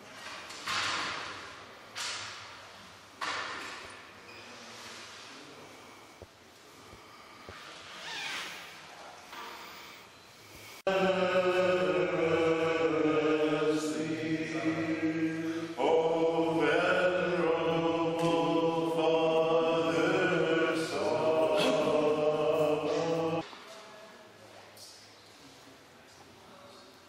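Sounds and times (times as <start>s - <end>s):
men chanting a hymn: 10.8s - 23.4s.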